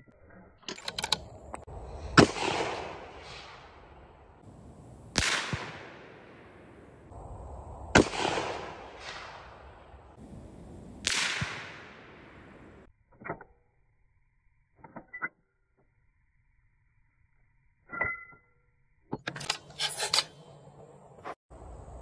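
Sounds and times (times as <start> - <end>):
rifle shots with echo: 2.1 - 7.1, 7.7 - 12.9.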